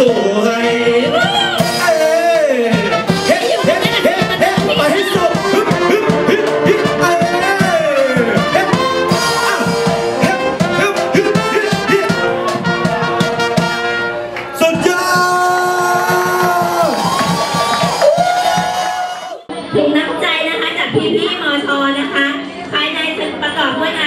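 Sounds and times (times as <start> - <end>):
person singing: 0.0 - 12.4
brass instruments: 0.0 - 19.5.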